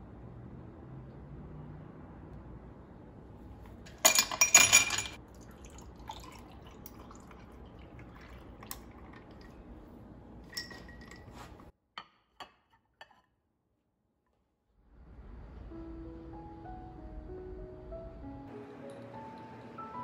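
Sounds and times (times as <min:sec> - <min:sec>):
dishware clattering: 0:03.9 - 0:05.2, 0:10.4 - 0:11.6
cola fizzing over ice: 0:05.2 - 0:09.9
faint glass clinks: 0:10.5 - 0:11.5.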